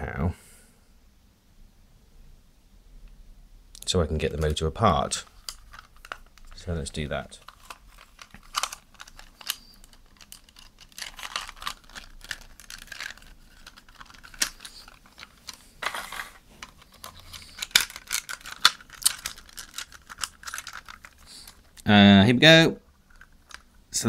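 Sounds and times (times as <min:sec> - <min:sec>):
plastic scraping and rustling: 0:04.2 - 0:21.8, 0:22.8 - 0:23.8
plastic parts clicking: 0:05.2 - 0:21.8, 0:23.0 - 0:23.8.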